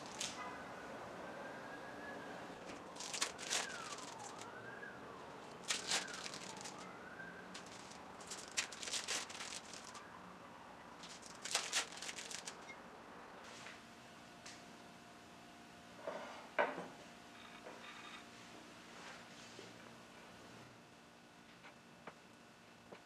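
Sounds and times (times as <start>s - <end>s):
plastic wrappers crinkling: 0.0s - 0.4s, 2.6s - 10.1s, 11.0s - 12.8s.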